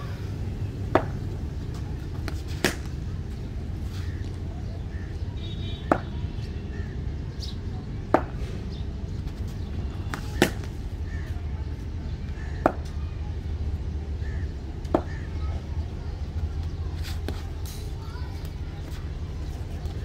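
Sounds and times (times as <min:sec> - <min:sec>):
steady low rumble: 0:00.0 - 0:05.4.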